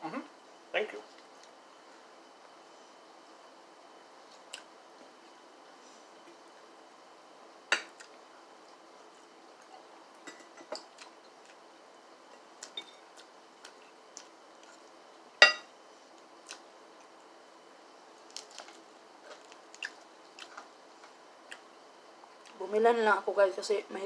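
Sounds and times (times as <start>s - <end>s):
crunching fried chicken: 18.2s - 20.7s.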